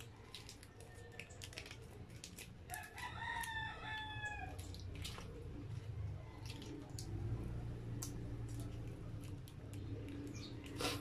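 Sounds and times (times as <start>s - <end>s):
plastic sachets crinkling: 0.0s - 11.0s
rooster crowing: 2.7s - 4.6s.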